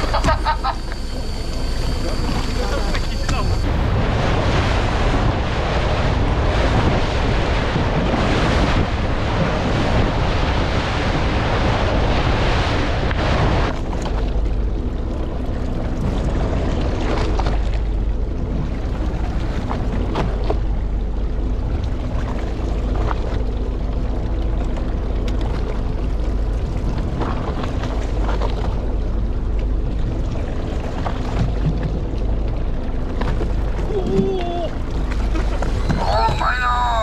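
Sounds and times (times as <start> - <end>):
faint steady hum: 0.0 - 37.0
low rumble: 0.0 - 37.0
sea water splashing against hull: 0.0 - 37.0
wind buffeting microphone: 3.3 - 13.8.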